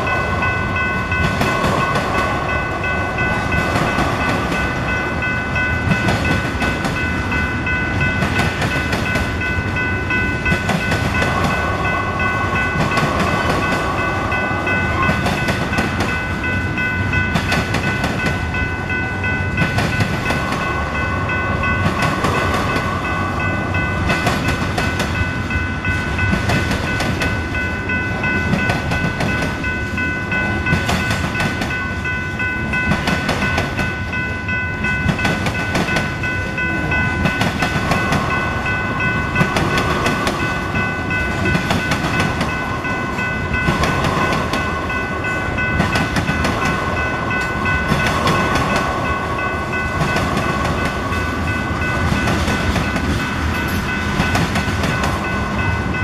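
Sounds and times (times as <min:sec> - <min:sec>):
freight train rumble: 0:00.0 - 0:56.0
train wheels clattering over crossing: 0:00.0 - 0:56.0.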